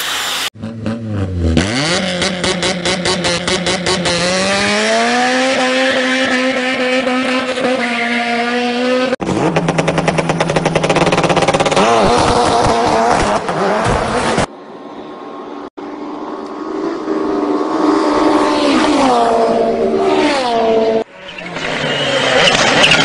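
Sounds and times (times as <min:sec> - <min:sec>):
engine revving: 0:00.5 - 0:14.4, 0:15.9 - 0:23.0.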